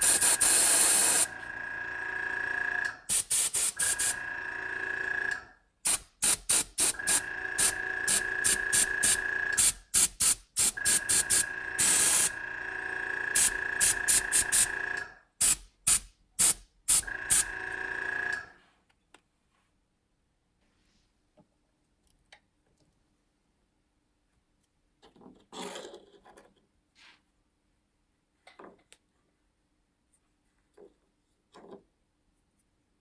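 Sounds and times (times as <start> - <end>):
airbrush spraying hiss: 0.0 - 1.3, 3.1 - 4.1, 5.9 - 12.3.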